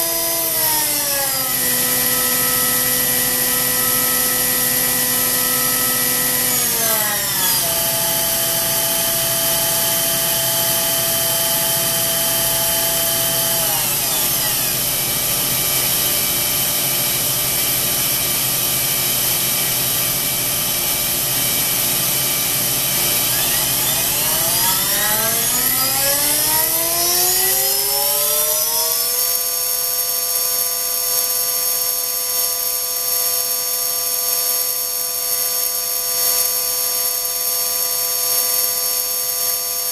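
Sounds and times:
electric motor high whine: 0.0s - 29.8s.

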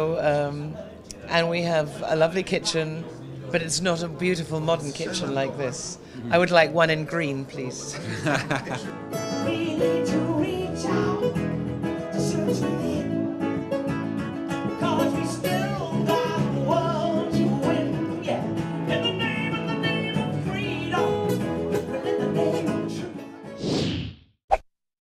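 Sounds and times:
instrumental accompaniment: 8.4s - 23.6s
woman singing into a microphone: 9.2s - 13.4s, 14.7s - 23.2s.

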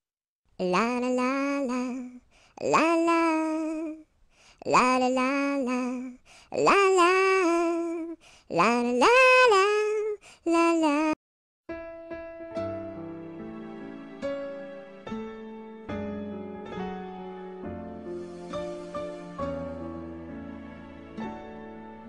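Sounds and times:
woman singing unaccompanied: 0.6s - 11.2s
piano chords: 11.7s - 22.0s.

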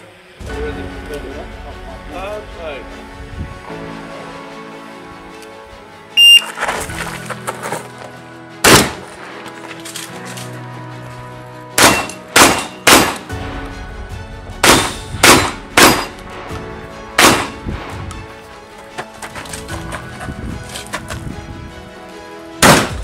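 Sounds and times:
background music: 0.0s - 23.0s
shotgun shots: 8.6s - 9.1s, 11.8s - 13.3s, 14.6s - 16.2s, 17.2s - 17.6s, 22.6s - 23.0s.

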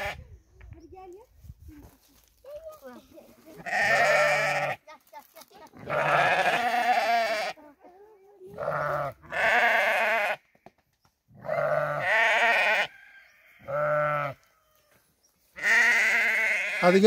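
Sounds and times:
sheep and goats bleating: 0.0s - 0.2s, 3.4s - 10.5s, 11.3s - 17.0s.

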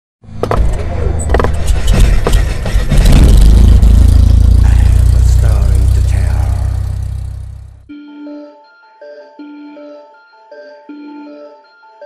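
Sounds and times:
deep rumble: 0.4s - 7.9s
sharp hits: 0.4s - 7.9s.

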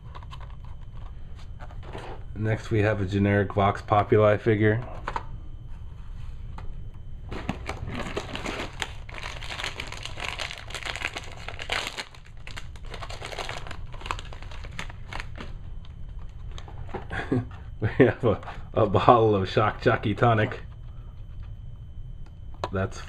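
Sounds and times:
plastic packs crinkling and clicking: 7.3s - 17.0s.

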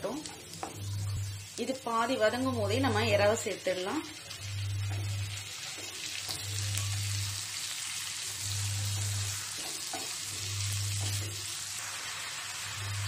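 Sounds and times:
food sizzling in oil: 0.0s - 13.0s
low hum: 0.6s - 1.5s, 4.4s - 5.4s, 8.4s - 9.4s.

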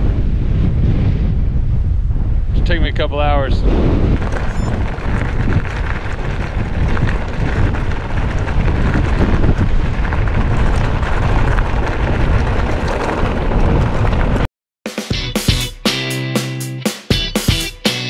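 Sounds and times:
wind buffeting microphone: 0.0s - 14.5s
bike clicks and rattles: 4.2s - 14.4s.

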